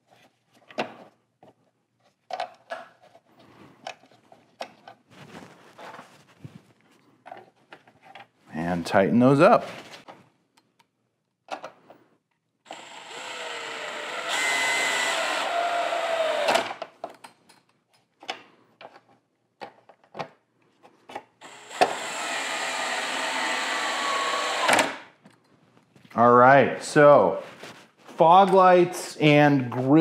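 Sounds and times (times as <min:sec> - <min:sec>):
cordless drill driving screws: 0:12.7 - 0:16.8, 0:21.4 - 0:25.0.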